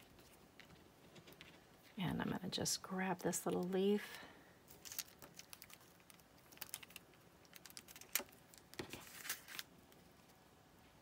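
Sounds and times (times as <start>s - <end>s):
paper rustle: 4.7s - 10.4s.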